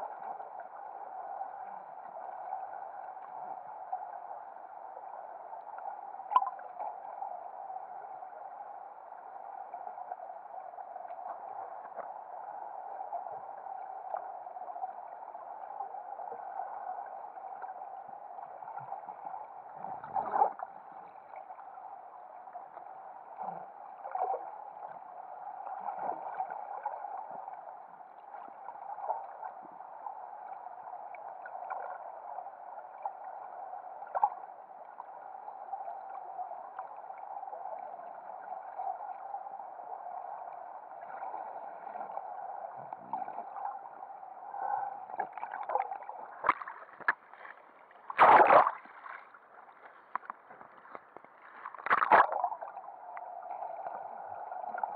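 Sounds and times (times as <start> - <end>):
muffled underwater hum: 0.0 - 54.9
underwater knocks and gurgles: 5.8 - 7.1, 18.4 - 29.9, 40.1 - 54.9
water splashes: 44.7 - 52.9.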